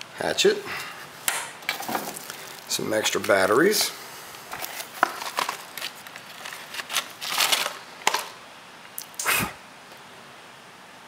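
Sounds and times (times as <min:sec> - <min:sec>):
packaging rustling and crinkling: 0:01.7 - 0:08.4.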